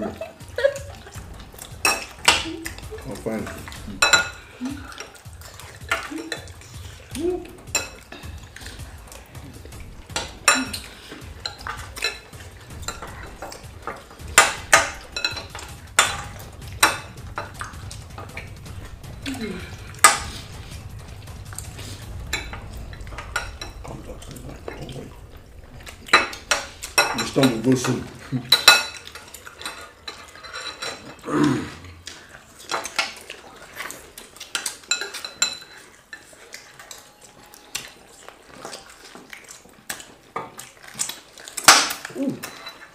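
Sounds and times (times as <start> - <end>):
cutlery clinking on plates: 1.8 - 6.8, 7.7 - 9.4, 10.1 - 18.4, 25.8 - 31.2, 32.0 - 42.9.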